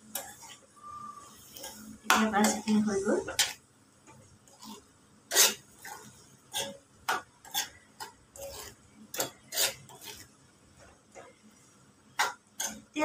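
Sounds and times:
spatula scraping a metal pan: 0.0s - 2.6s, 4.5s - 10.3s, 12.2s - 12.9s.

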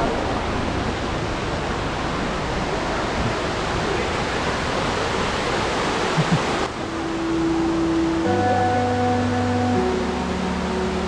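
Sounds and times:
stream water over rocks: 0.0s - 11.0s
background music: 6.3s - 11.0s.

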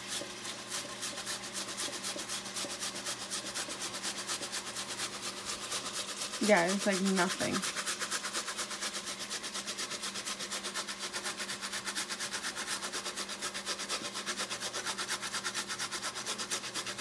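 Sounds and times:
onion grated on metal grater: 0.0s - 17.0s.

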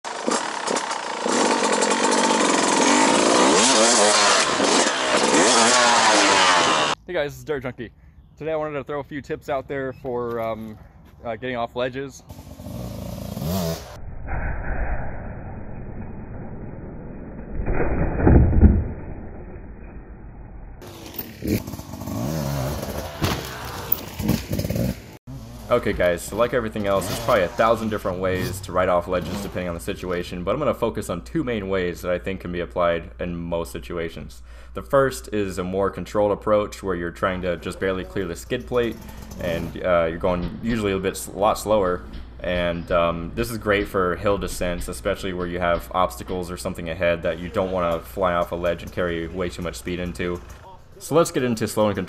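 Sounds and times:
dirt bike engine: 0.0s - 7.0s, 12.2s - 14.0s, 17.4s - 52.0s
dirt bike engine revving: 0.1s - 7.0s, 12.3s - 14.0s, 20.8s - 29.8s, 38.6s - 40.0s.

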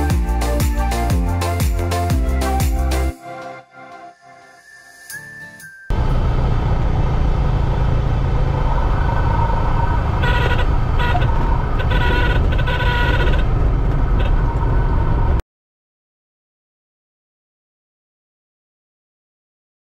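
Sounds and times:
aircraft engine and airflow rumble: 5.9s - 15.4s
high stall warning horn: 10.2s - 13.5s.

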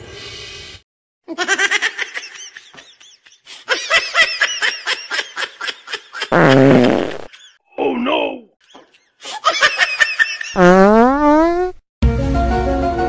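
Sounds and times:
fart sound effect: 6.3s - 7.3s, 10.6s - 11.8s.

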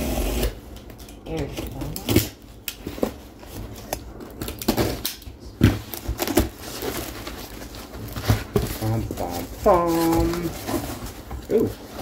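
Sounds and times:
cardboard rustling and tearing: 2.9s - 12.0s.

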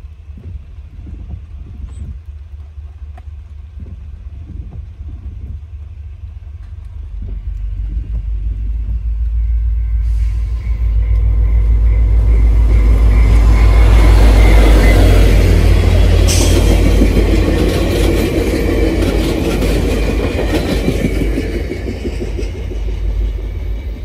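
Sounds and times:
passing train rumble: 0.0s - 24.0s
train wheels clattering over joints: 12.3s - 24.0s.

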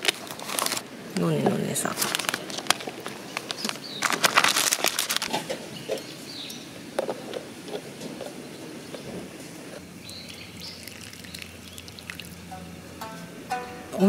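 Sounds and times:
water pouring into bowl: 10.1s - 12.5s.

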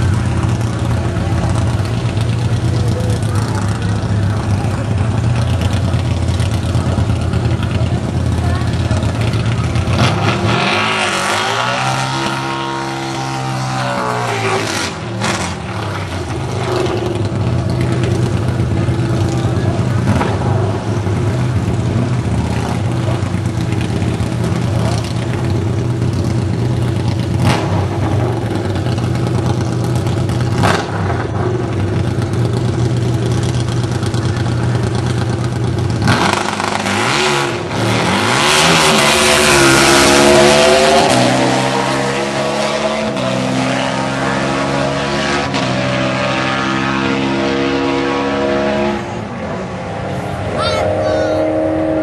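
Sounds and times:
motorcycle and car engines: 0.0s - 52.0s.

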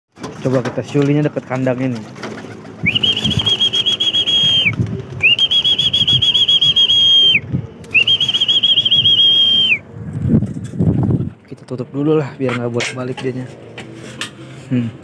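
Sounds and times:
person whistling warbling whistles: 2.8s - 9.8s.

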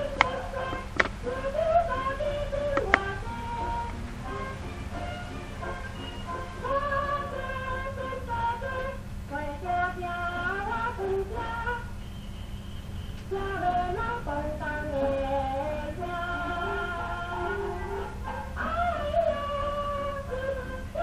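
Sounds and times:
instrumental accompaniment: 0.0s - 8.9s
woman singing: 0.0s - 12.0s, 13.2s - 21.0s
low record rumble and hum: 0.0s - 21.0s.

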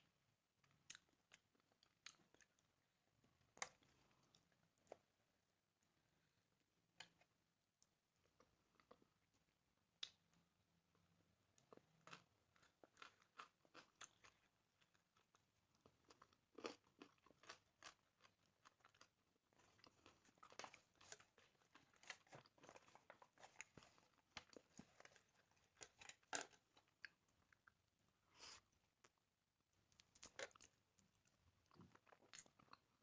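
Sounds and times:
chewing: 11.7s - 27.8s.

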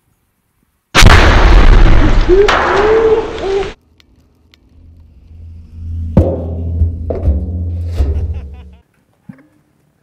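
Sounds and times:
sharp bang: 1.0s - 3.6s
loud explosion blast: 1.0s - 3.8s.

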